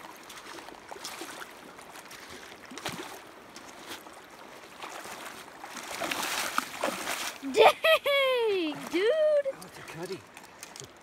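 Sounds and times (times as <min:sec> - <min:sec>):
creek water running over stones: 0:00.0 - 0:11.0
foot stirring water: 0:00.0 - 0:11.0
fish splashing in water: 0:00.3 - 0:07.4.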